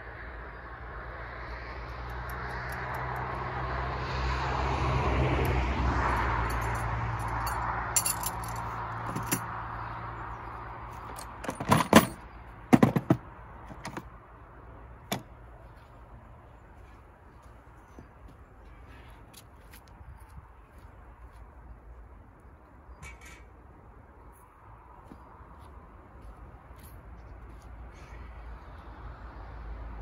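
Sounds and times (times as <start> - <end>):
gear clinking in plastic case: 7.4 - 9.5, 11.0 - 14.1.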